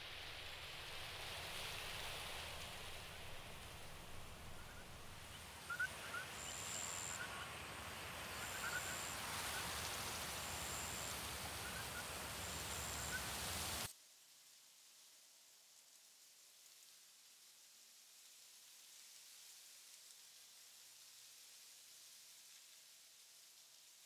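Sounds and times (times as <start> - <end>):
faint chirping calls: 3.9 - 9.8, 10.6 - 13.4.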